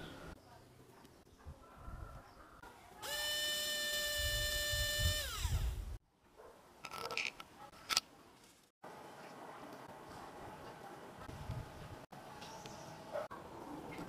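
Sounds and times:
small motor whining: 0:03.0 - 0:06.0.

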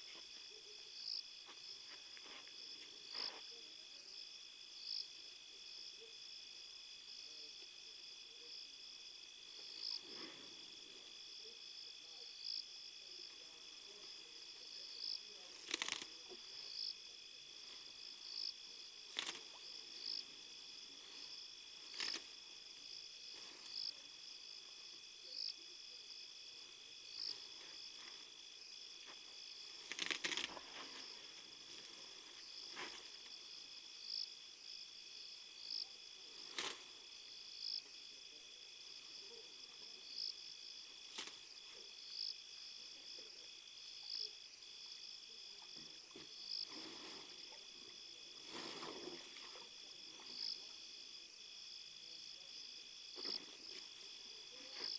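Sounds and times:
crickets trilling: 0:00.0 - 0:54.9
high insect chirp: 0:00.0 - 0:54.9
elephant snapping vegetation: 0:15.6 - 0:16.2, 0:19.1 - 0:19.6, 0:21.9 - 0:22.3, 0:29.8 - 0:30.7, 0:36.5 - 0:36.9, 0:41.1 - 0:41.4.

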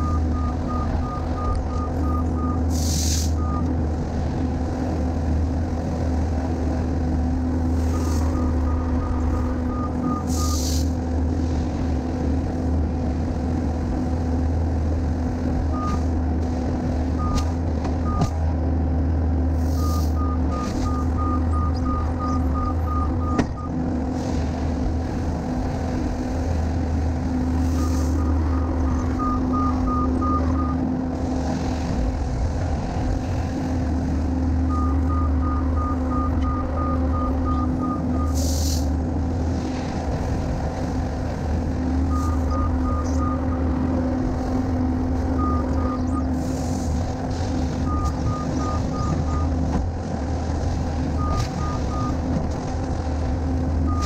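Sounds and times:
diesel engine running: 0:00.0 - 0:54.0
short hisses: 0:02.7 - 0:03.4, 0:10.3 - 0:11.0, 0:38.4 - 0:38.9.

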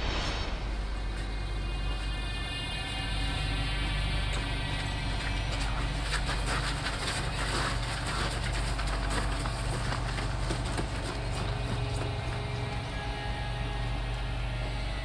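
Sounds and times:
low rumble: 0:00.0 - 0:07.7
running footsteps on pavement: 0:04.4 - 0:13.0
scuffling: 0:04.4 - 0:13.0.

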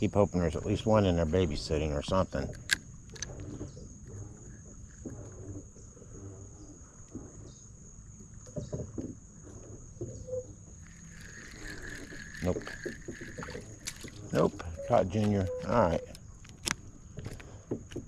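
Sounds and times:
fishing reel clicks and knocks: 0:02.3 - 0:03.4, 0:10.8 - 0:16.8
thin steady high tone: 0:10.8 - 0:16.2.

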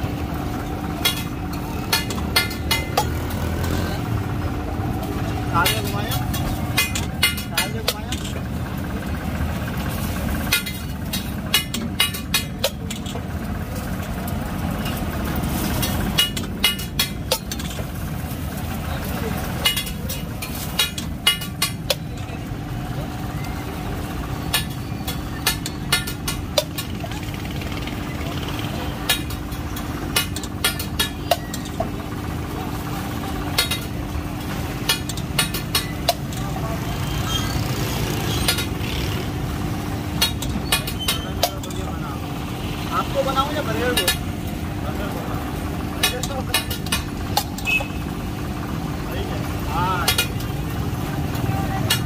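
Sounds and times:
constant hum: 0:00.0 - 0:52.0
low traffic rumble: 0:00.0 - 0:52.0
metal spatula striking griddle: 0:01.0 - 0:03.3, 0:05.6 - 0:08.5, 0:10.0 - 0:13.3, 0:14.8 - 0:17.9, 0:19.4 - 0:22.4, 0:24.4 - 0:27.0, 0:29.0 - 0:31.9, 0:33.6 - 0:33.9, 0:34.8 - 0:36.4, 0:40.2 - 0:41.8, 0:46.0 - 0:48.0.

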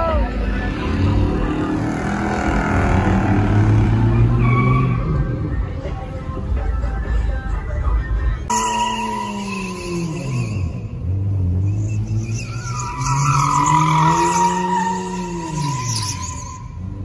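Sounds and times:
car engine revving: 0:00.3 - 0:05.7
tyres squealing: 0:08.5 - 0:17.0.

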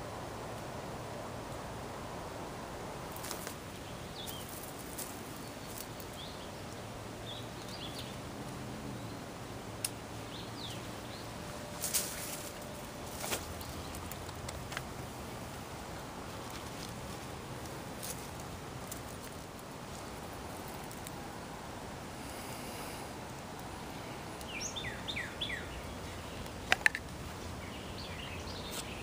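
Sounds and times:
steady low hiss: 0:00.0 - 0:29.0
bird chirps: 0:24.0 - 0:26.5.

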